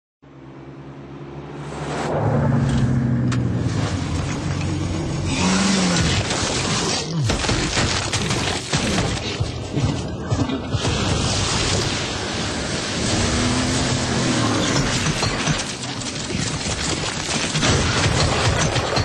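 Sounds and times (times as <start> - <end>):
suv engine revving: 12.9 - 15.0.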